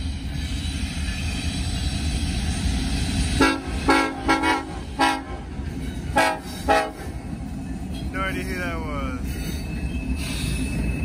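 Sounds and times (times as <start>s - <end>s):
train rumbling: 0.0s - 11.0s
locomotive air horn blasts: 3.4s - 5.5s, 6.2s - 7.1s.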